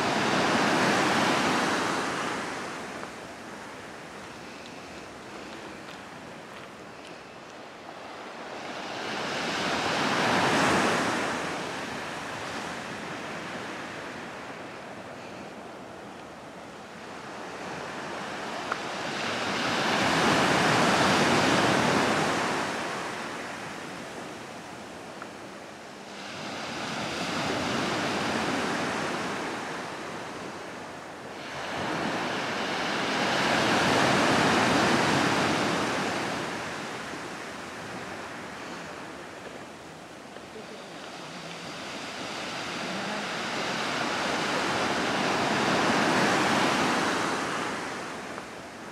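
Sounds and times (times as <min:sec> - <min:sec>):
waves washing onto rocky shore: 0:17.2 - 0:25.1, 0:31.2 - 0:48.9.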